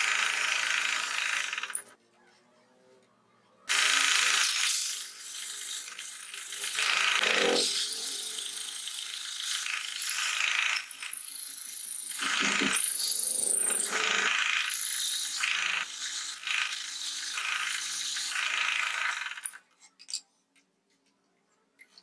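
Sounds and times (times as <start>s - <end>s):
hole saw cutting plywood: 6.8s - 8.3s, 12.2s - 14.4s
drill press motor hum: 12.2s - 14.6s.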